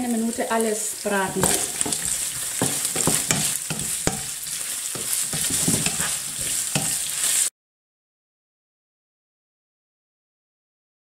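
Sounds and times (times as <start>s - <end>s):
meat and onion sizzling in a pan: 0.0s - 7.5s
wooden spatula scraping: 1.0s - 7.5s
spatula knocking against pan: 1.3s - 7.1s.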